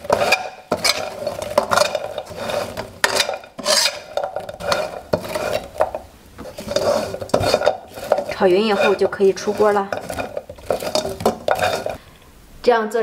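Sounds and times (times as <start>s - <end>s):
dough rustling in syrup: 0.0s - 12.0s
spatula scraping wok: 0.0s - 12.1s.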